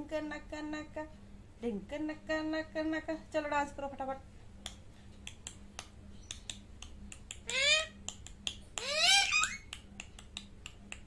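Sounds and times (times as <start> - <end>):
parakeet squawks: 7.4 - 8.0, 8.8 - 9.7.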